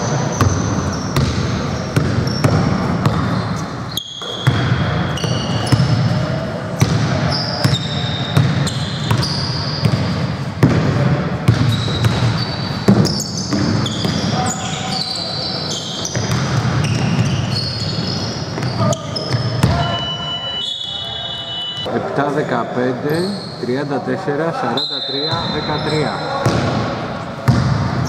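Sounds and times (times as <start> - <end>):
sneakers squeaking: 0.0 - 28.0
basketball bouncing on hardwood: 1.2 - 3.3, 27.4 - 27.9.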